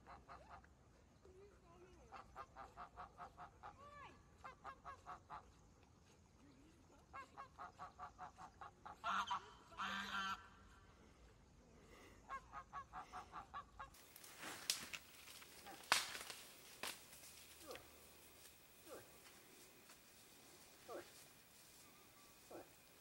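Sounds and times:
goose honking: 7.4 - 10.6
sharp cracks: 14.0 - 20.0.

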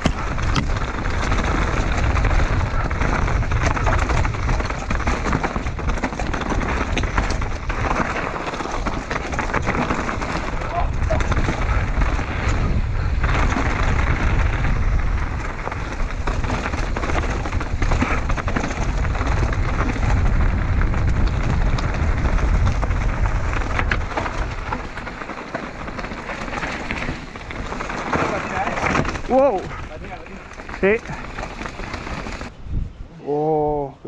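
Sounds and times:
bike tyres crunching over stones: 0.0 - 32.5
wind rumbling on microphone: 0.0 - 34.0.

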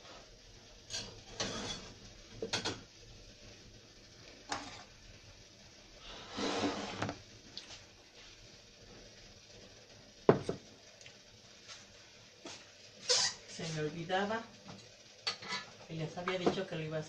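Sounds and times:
plate scraping on pot: 0.9 - 2.8, 4.5 - 4.9, 6.1 - 7.2, 15.3 - 15.7.

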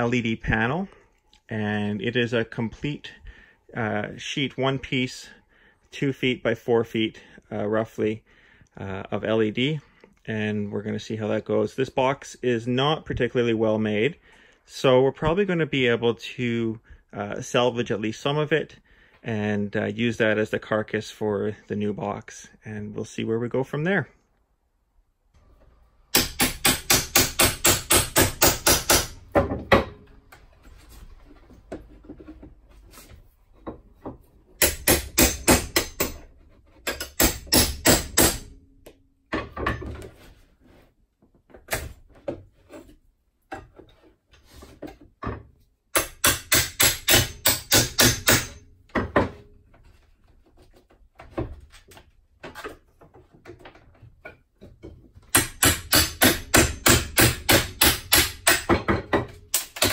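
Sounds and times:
hammer striking wood: 26.1 - 30.0, 34.6 - 36.2, 36.9 - 38.5, 45.9 - 49.4, 55.3 - 59.9
wood scraping: 29.0 - 34.5, 42.0 - 45.2, 49.2 - 55.2.

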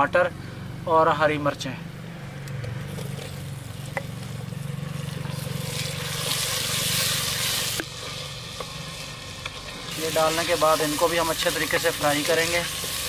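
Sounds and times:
vegetables sizzling in hot fat: 2.9 - 13.0.

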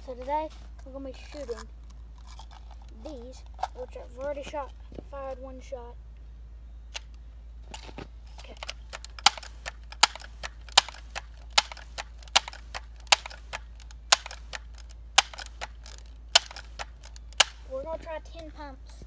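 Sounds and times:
air rifle pump clicking: 8.6 - 17.6.

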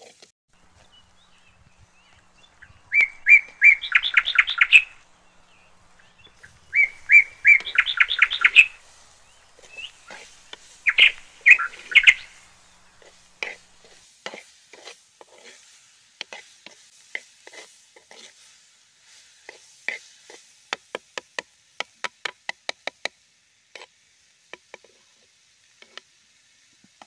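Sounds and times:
songbird singing with trills: 0.6 - 13.9.

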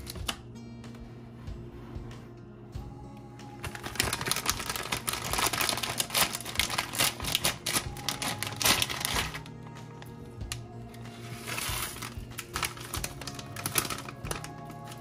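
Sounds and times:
plastic packet crinkling: 3.6 - 15.0.

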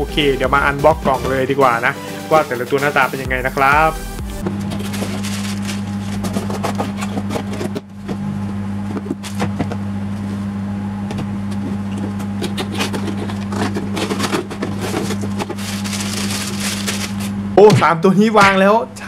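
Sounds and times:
steady low hum: 3.3 - 19.0
cardboard boxes scraping and rustling: 4.4 - 10.6, 11.2 - 17.4.

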